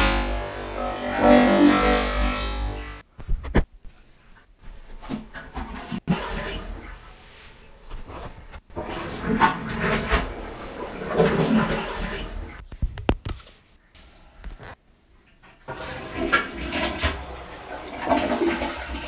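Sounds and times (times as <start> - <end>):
deep altered voice playback: 0.0 - 3.0
noisy recording playback: 0.0 - 19.0.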